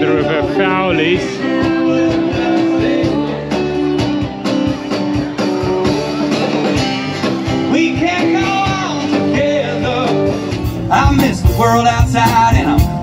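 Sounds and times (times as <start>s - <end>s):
man singing: 0.0s - 3.9s, 7.6s - 13.0s
acoustic guitar: 0.0s - 13.0s
drums: 0.0s - 13.0s
electric guitar: 0.0s - 13.0s.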